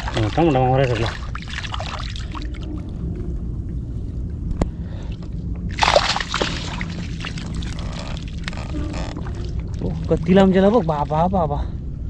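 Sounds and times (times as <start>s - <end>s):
water sloshing over mud: 0.0s - 3.0s, 5.7s - 11.3s
low rumble: 0.0s - 12.0s.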